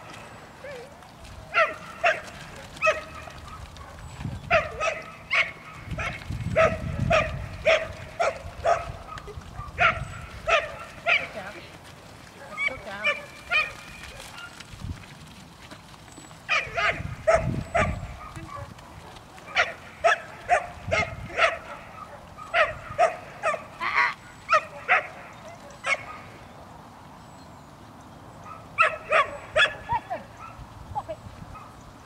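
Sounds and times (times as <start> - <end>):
dog barking: 1.6 - 11.4, 12.4 - 14.6, 16.5 - 23.7, 24.5 - 26.3, 28.4 - 30.6.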